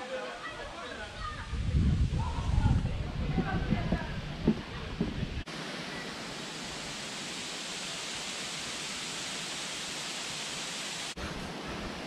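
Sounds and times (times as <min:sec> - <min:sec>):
steady hiss: 0:04.3 - 0:12.0.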